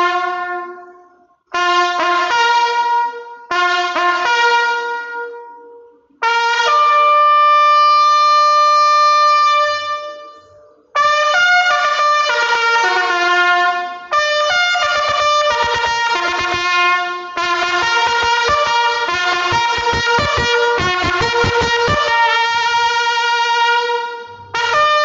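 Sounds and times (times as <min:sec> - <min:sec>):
slow brass-like chords: 0:06.2 - 0:25.0.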